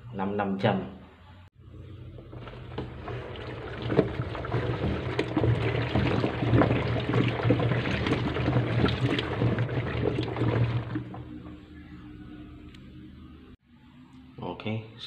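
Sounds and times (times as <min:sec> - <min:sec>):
water sloshing and splashing: 0:02.1 - 0:11.6.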